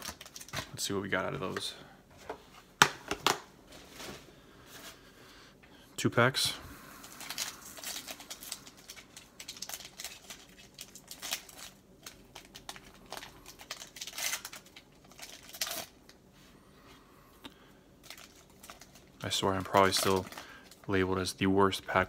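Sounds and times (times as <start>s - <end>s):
foil wrapper crinkling and tearing: 0.0s - 0.9s, 7.0s - 16.2s, 18.0s - 21.4s.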